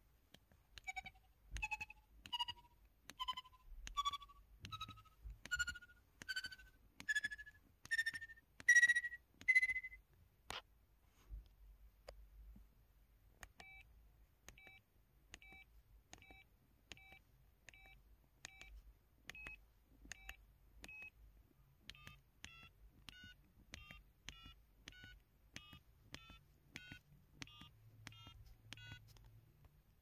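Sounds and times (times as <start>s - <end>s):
keypad clicks: 0.3s - 10.7s, 13.4s - 13.8s, 14.4s - 29.8s
short electronic beeps: 0.9s - 10.0s.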